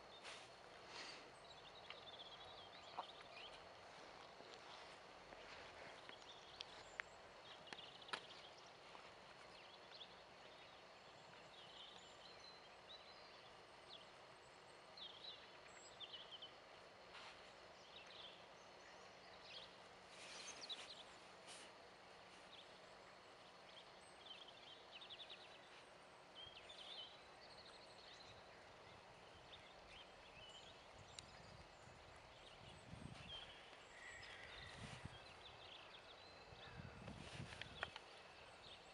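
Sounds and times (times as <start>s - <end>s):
faint bird chirps: 0.0s - 38.9s.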